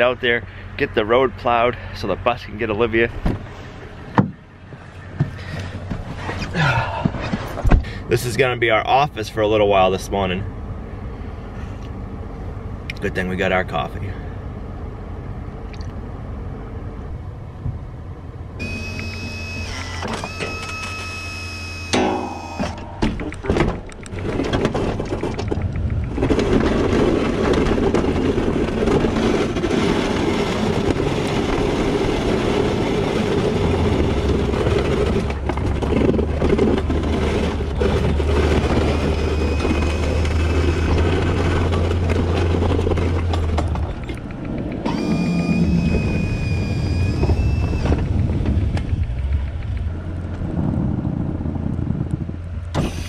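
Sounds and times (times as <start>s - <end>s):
engine droning: 0.0s - 53.0s
steady high tone: 18.6s - 23.4s, 44.8s - 48.0s
plow blade through snow: 18.6s - 53.0s.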